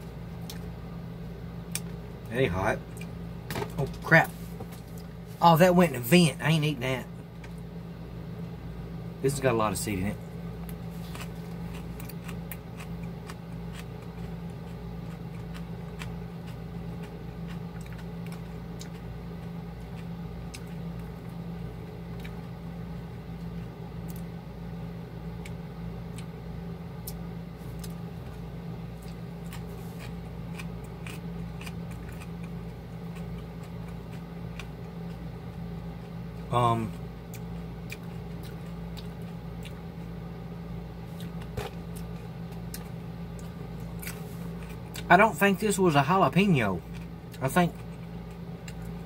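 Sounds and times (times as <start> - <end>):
low machine hum: 0.0 - 49.0
person chewing close up: 0.3 - 0.8, 10.6 - 24.3, 25.3 - 26.4, 27.0 - 40.4, 41.0 - 45.1, 46.7 - 49.0.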